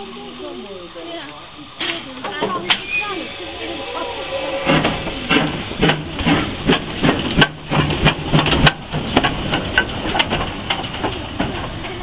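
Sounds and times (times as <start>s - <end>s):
steam locomotive chuffing: 2.6s - 12.0s.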